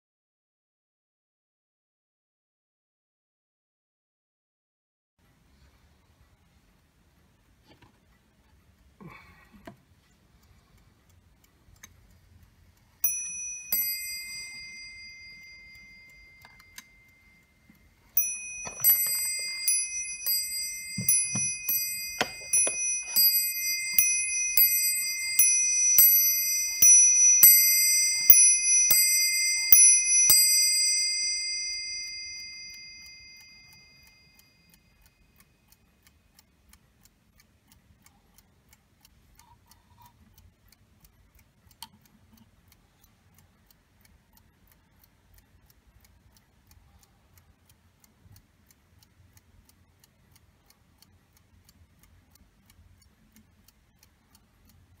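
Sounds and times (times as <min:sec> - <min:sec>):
clock ticking: 0:05.2 - 0:55.0
clock striking bell: 0:13.0 - 0:17.3, 0:18.2 - 0:34.4.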